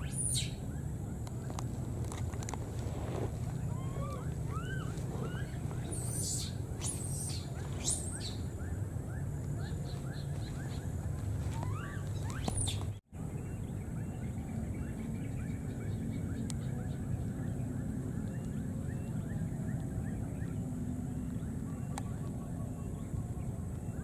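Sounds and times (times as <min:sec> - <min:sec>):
wind rumble on microphone: 0:00.0 - 0:24.0
small animals chirping: 0:03.5 - 0:08.5, 0:09.2 - 0:13.0.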